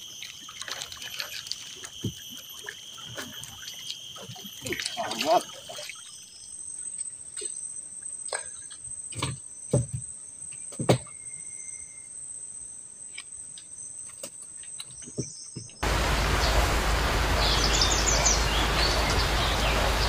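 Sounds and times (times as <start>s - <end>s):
high-pitched insect drone: 0.0s - 6.8s
loud even hiss: 15.8s - 20.0s
high bird chirps: 17.2s - 20.0s.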